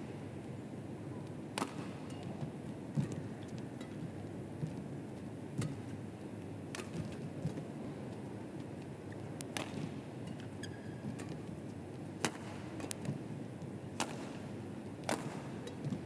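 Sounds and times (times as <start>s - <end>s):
arena noise hum: 0.0s - 16.0s
rackets striking shuttlecock: 1.5s - 2.4s, 6.7s - 7.2s, 9.4s - 10.5s, 11.1s - 11.4s, 12.2s - 13.2s, 14.0s - 14.4s, 15.0s - 16.0s
shoe squeak: 10.2s - 11.1s.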